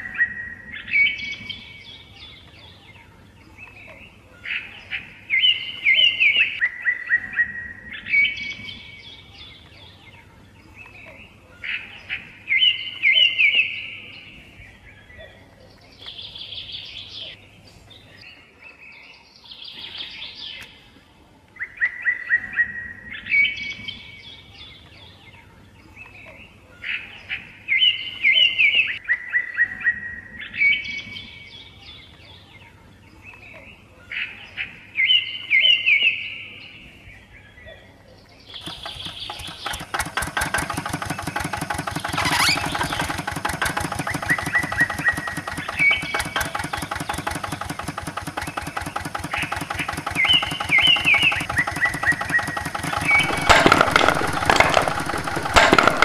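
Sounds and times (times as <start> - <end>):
songbirds chirping: 0.0 - 56.0
model tractor motor ticking: 38.6 - 56.0.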